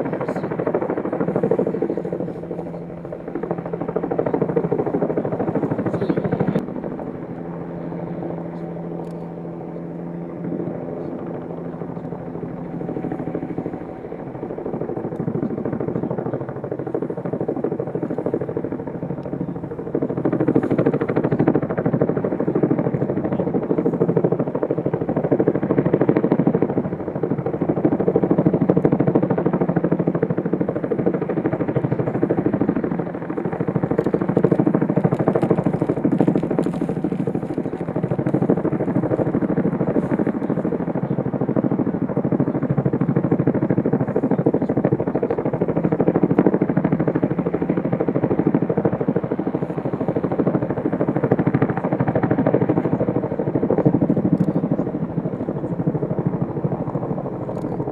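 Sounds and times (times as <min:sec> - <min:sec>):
helicopter rotor and engine: 0:00.0 - 0:57.9.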